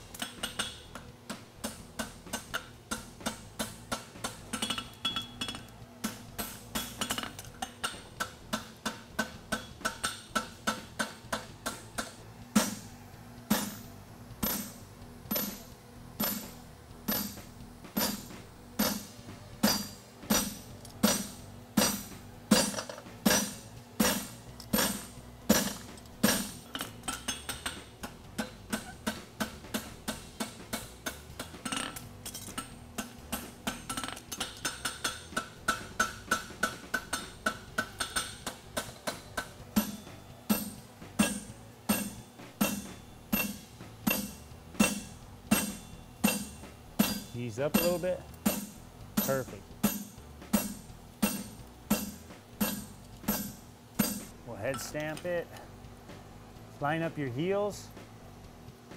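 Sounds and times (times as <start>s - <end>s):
hammer ringing on anvil: 19.6s - 27.8s, 33.8s - 55.0s.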